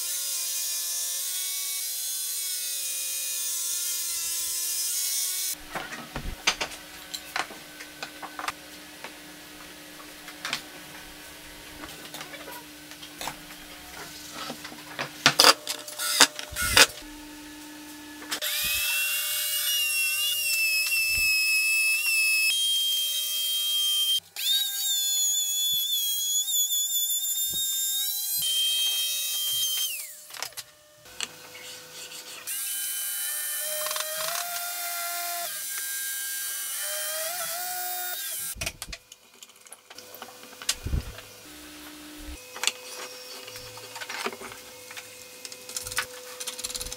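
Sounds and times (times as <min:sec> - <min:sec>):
electric drill boring wood: 0:15.4 - 0:17.4, 0:18.3 - 0:31.8, 0:32.5 - 0:38.6
trim router whining: 0:15.4 - 0:26.4.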